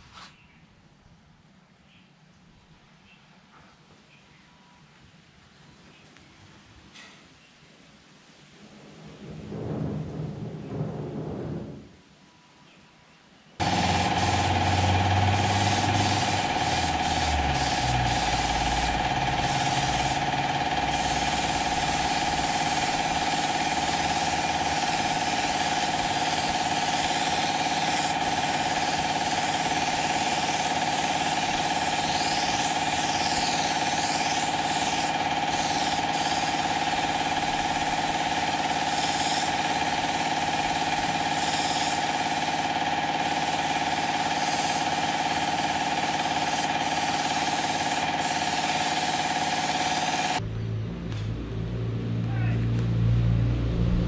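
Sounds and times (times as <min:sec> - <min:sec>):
paint sprayer whining: 0:13.6 - 0:50.4.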